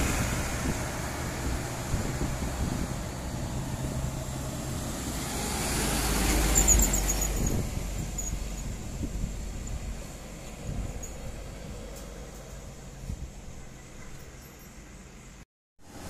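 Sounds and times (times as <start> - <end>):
diesel truck engine droning: 0.0 - 16.0
high squeal: 6.3 - 8.6.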